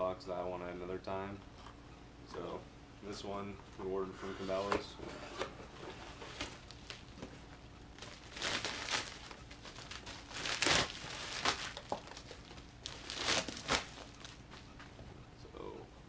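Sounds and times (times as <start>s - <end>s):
bubble wrap crinkling: 6.1s - 14.7s.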